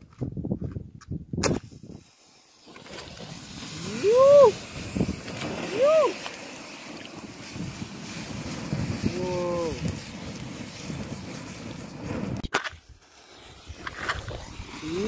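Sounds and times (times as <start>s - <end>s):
match strike: 1.4s - 4.6s, 8.4s - 15.0s
hiss of flame: 1.4s - 15.0s
person crying whoo in excitement: 3.8s - 4.6s, 5.7s - 6.2s
match scraping against box: 12.3s - 14.9s.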